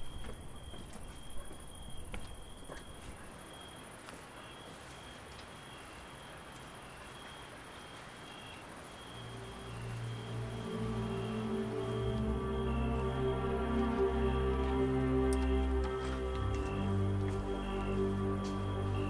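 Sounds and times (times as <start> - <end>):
crickets chirping: 0.0 - 19.0
faint background hiss: 2.0 - 19.0
low sustained music notes: 8.6 - 19.0.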